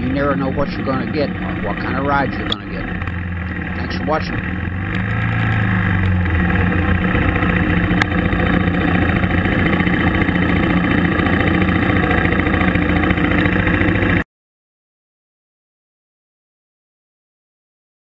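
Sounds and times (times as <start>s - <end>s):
motorcycle engine idling: 0.0s - 14.2s.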